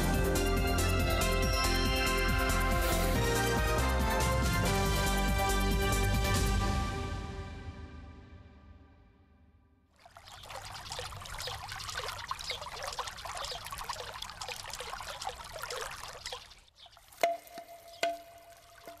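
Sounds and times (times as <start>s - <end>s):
water trickling into stone basin: 9.9s - 19.0s.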